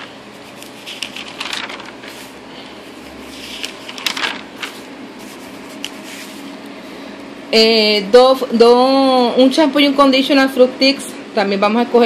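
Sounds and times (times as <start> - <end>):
paper pages rustling: 0.0 - 6.7.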